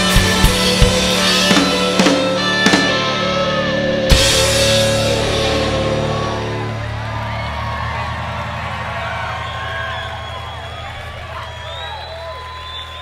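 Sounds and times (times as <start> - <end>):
rock band music: 0.0 - 12.7.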